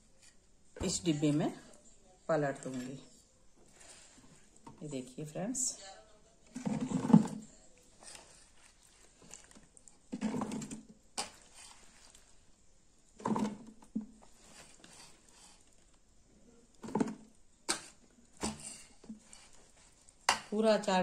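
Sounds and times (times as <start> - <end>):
spoon scooping wet pickle: 10.8 - 12.4.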